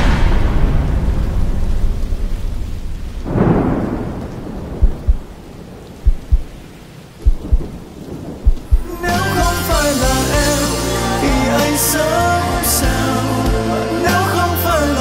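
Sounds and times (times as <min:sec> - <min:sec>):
low rumble: 0:00.0 - 0:06.6, 0:08.4 - 0:09.1
rain: 0:00.0 - 0:15.0
deep heartbeat thumps: 0:03.3 - 0:06.6, 0:07.2 - 0:09.0
music: 0:08.8 - 0:15.0.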